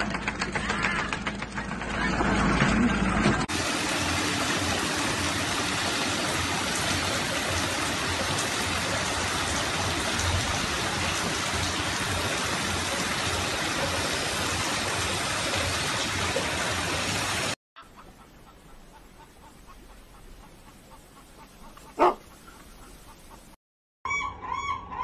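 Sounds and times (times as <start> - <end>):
heavy rain on pavement: 3.5 - 17.6.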